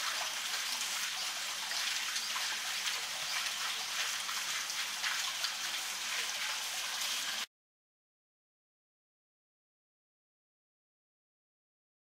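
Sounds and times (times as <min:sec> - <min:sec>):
pool water rushing: 0:00.0 - 0:07.5.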